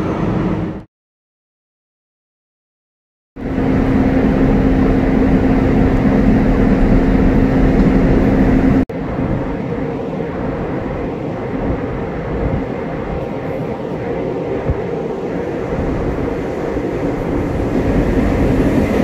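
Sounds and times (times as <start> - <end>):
metro train rumbling: 0.0 - 0.9, 3.4 - 19.0
electric hum: 3.4 - 13.2.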